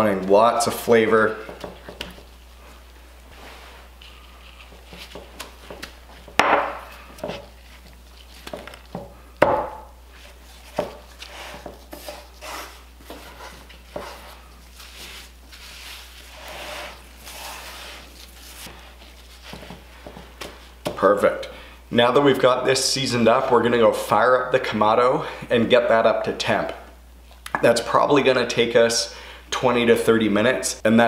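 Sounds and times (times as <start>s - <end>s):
hands rubbing and patting meat: 0.0s - 9.2s, 10.0s - 21.1s
gloves rustling: 0.0s - 21.4s.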